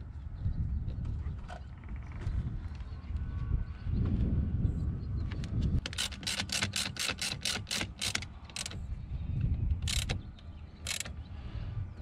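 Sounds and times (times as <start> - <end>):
ratchet wrench clicking: 5.8 - 8.8, 9.7 - 10.2, 10.8 - 11.1.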